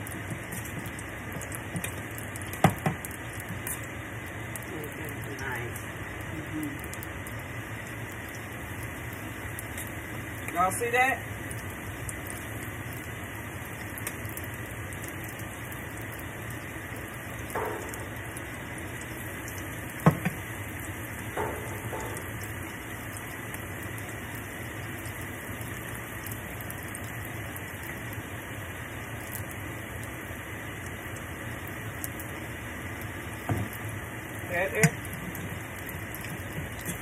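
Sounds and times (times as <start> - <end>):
food sizzling in hot oil: 0.0 - 37.0.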